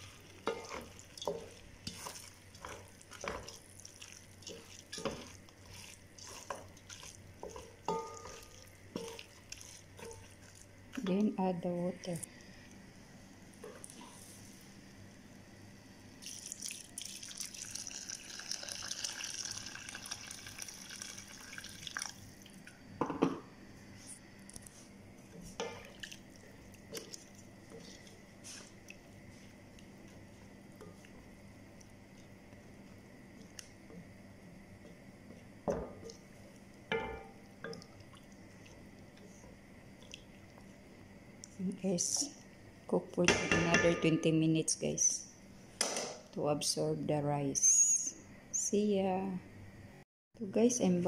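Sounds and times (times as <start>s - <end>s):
liquid sloshing: 0.0s - 10.8s
spatula stirring food in pot: 0.0s - 12.3s, 24.7s - 41.2s
water pouring into a pan: 16.2s - 22.4s.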